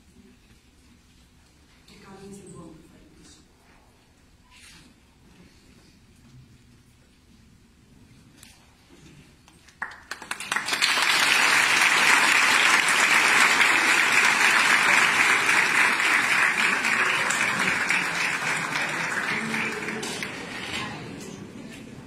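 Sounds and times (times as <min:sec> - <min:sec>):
large audience applauding: 0:09.7 - 0:21.2.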